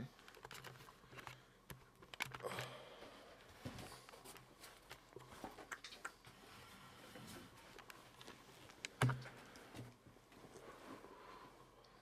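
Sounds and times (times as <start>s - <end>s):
camera handling clicks and rustles: 0.2s - 2.7s.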